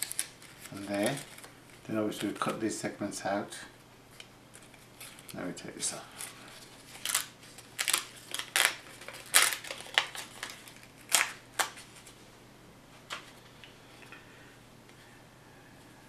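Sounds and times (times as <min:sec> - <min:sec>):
paper rustling: 0:00.0 - 0:02.6, 0:06.1 - 0:12.2.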